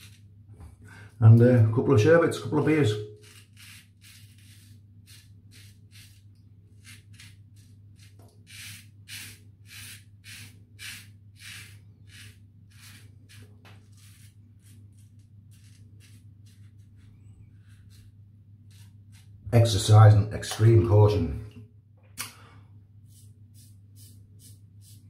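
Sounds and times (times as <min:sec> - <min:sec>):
razor scraping stubble: 0:02.6 - 0:19.8.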